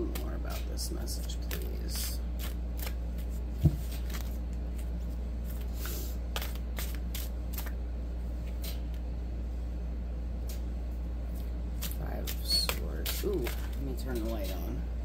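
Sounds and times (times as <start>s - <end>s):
steady low hum: 0.0s - 15.0s
cards being shuffled: 0.1s - 7.8s, 11.4s - 14.6s.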